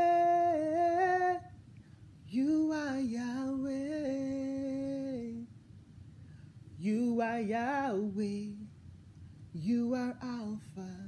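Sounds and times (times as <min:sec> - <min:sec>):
woman singing unaccompanied: 0:00.0 - 0:01.6, 0:02.3 - 0:05.6, 0:06.8 - 0:08.8, 0:09.6 - 0:11.0.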